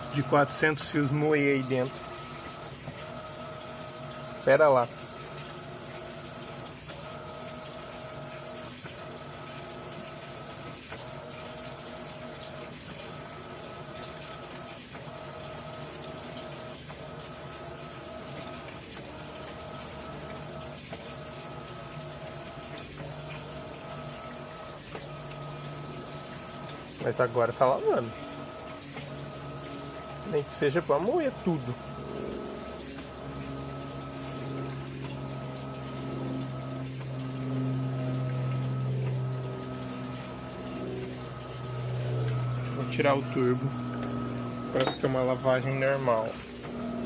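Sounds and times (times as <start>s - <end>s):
washing machine motor whine: 0.0s - 47.0s
water churning: 0.0s - 47.0s.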